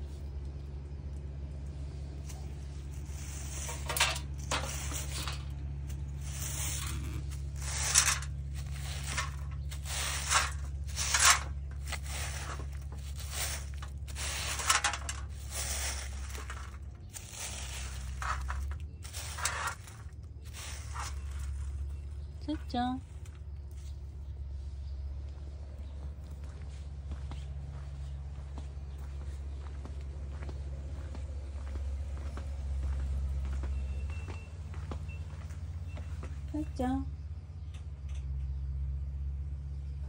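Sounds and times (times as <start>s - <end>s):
steady low hum: 0.0s - 40.0s
broom sweeping gravel: 1.9s - 24.0s.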